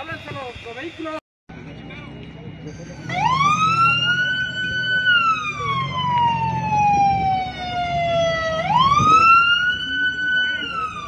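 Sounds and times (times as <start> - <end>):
emergency vehicle siren wailing: 3.0 - 11.0.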